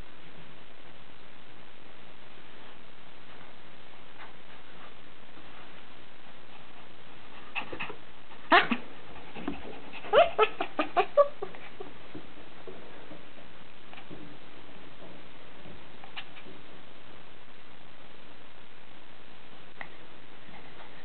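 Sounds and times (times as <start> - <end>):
puppy yelping: 10.0 - 11.4.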